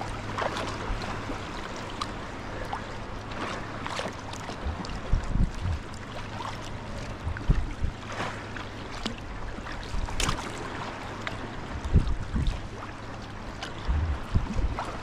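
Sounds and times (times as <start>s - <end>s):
water washing along hull: 0.0s - 15.0s
low bumps: 4.6s - 6.0s, 7.0s - 8.0s, 13.8s - 14.9s.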